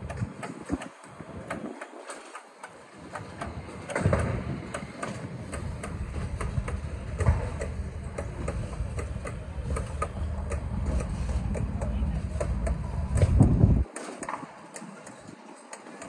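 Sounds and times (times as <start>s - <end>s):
machinery clicking: 0.0s - 16.0s
low rumble: 6.0s - 13.9s.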